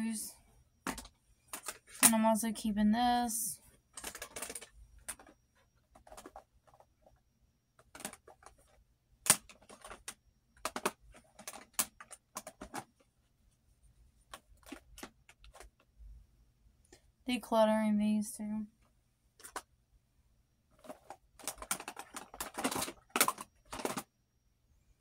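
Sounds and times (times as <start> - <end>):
plastic compacts clicking: 0.8 - 2.2, 3.9 - 7.2, 7.8 - 13.0, 14.3 - 15.9, 19.4 - 19.7, 20.8 - 24.1.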